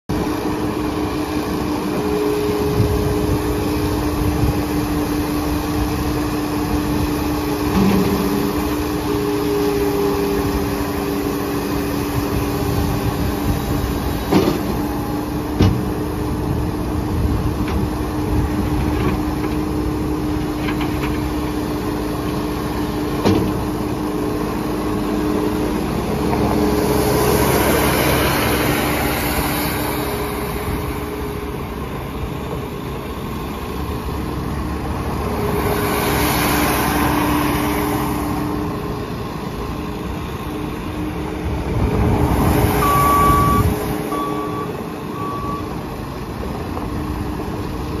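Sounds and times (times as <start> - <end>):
diesel loader engine running: 0.1 - 48.0
engine and hydraulic surges: 0.1 - 48.0
backup alarm beeping: 42.8 - 45.7.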